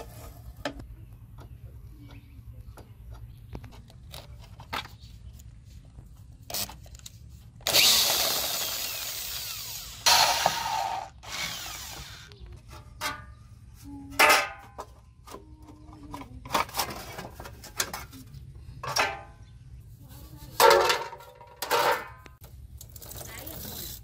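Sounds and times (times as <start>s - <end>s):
metal and plastic parts clanking: 14.2s - 19.4s, 20.6s - 23.4s.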